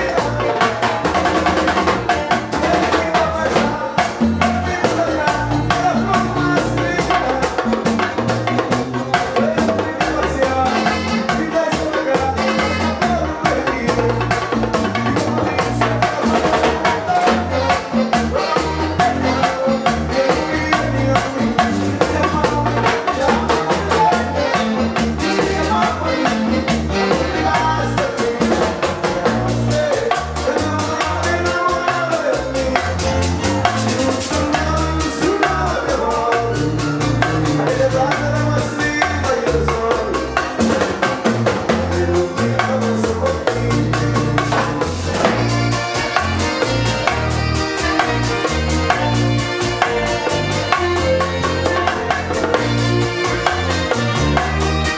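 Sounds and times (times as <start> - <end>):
latin dance band playing: 0.0 - 54.9
male lead vocal: 0.0 - 54.9.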